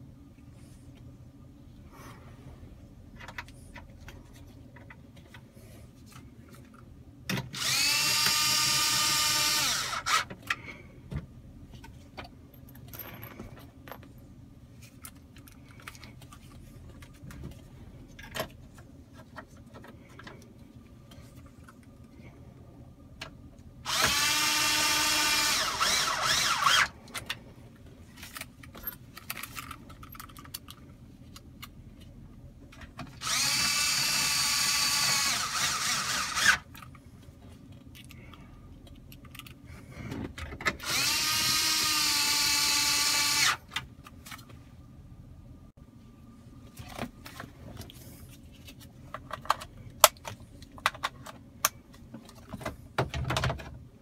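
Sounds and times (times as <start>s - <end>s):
electric screwdriver motor whining: 7.6s - 10.3s, 23.9s - 26.9s, 33.2s - 36.6s, 40.8s - 43.6s.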